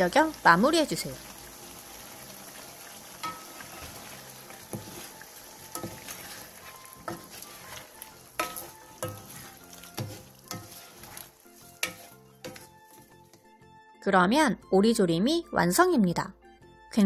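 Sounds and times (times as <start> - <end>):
sauce sizzling in frying pan: 0.0 - 13.5
wooden spatulas knocking pan: 5.8 - 12.8.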